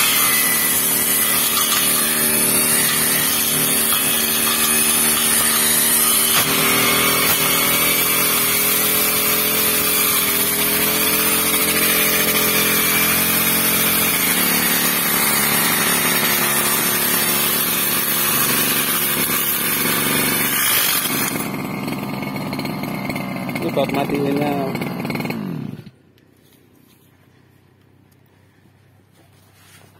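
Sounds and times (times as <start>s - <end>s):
trimmer head cutting grass: 0.0s - 26.0s
brush cutter engine running: 0.0s - 26.3s.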